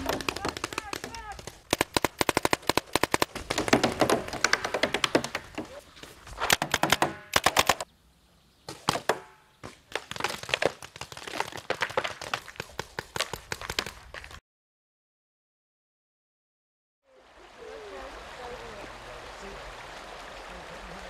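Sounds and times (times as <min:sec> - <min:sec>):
paintball markers firing: 0:00.0 - 0:05.8, 0:06.4 - 0:07.8, 0:08.7 - 0:14.2.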